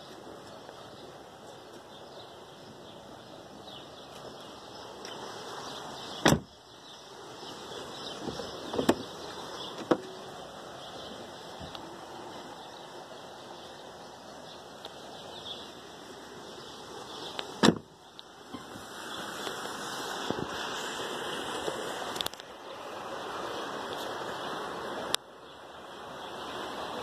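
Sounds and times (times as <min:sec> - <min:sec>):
steady rushing noise: 0:00.0 - 0:27.0
car door shutting: 0:06.2 - 0:06.5, 0:08.1 - 0:09.1, 0:09.7 - 0:10.2, 0:17.6 - 0:17.9.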